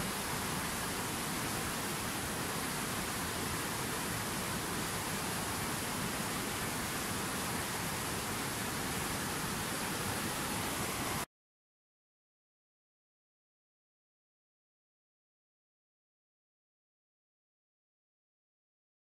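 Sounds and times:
river rushing over rocks: 0.0s - 11.2s.

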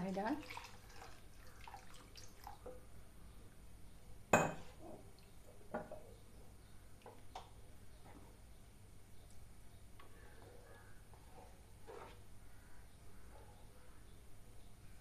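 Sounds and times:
liquid sloshing and stirring: 0.4s - 2.8s, 11.1s - 12.3s.

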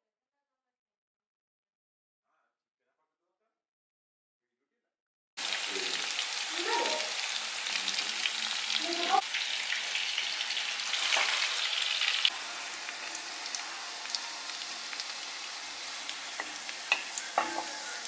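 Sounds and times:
chicken deep-frying in oil: 5.4s - 18.0s.

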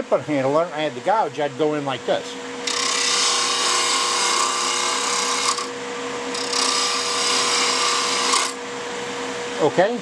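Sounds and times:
lathe motor hum: 2.3s - 9.6s
gouge cutting spinning wood: 2.6s - 8.6s.

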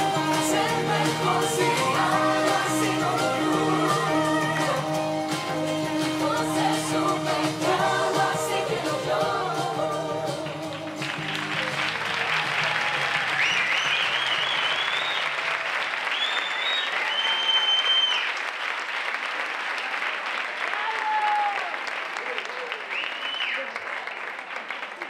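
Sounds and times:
audience applause: 0.0s - 8.7s, 10.6s - 25.0s
high-pitched cheering: 0.0s - 10.1s, 10.8s - 18.4s
pop song with singing: 0.0s - 11.8s.

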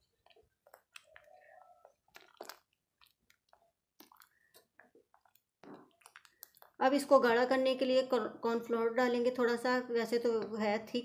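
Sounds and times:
spoon stirring thick sauce in pot: 0.0s - 7.2s, 10.1s - 11.0s.

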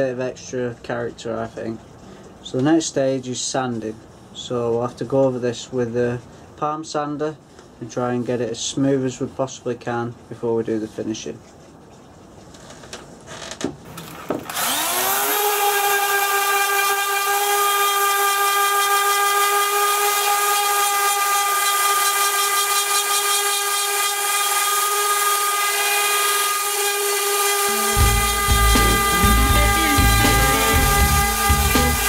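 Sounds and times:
electric sander motor whine: 14.1s - 32.0s
music with deep bass: 27.9s - 32.0s.

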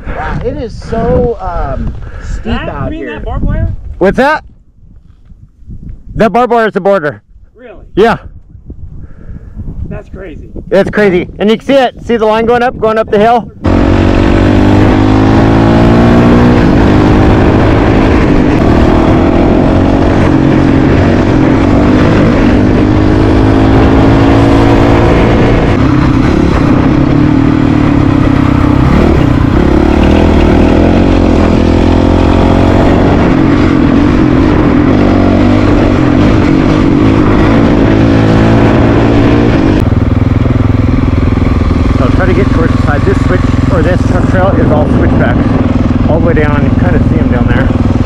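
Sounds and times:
motorcycle engine revving: 13.6s - 48.0s.

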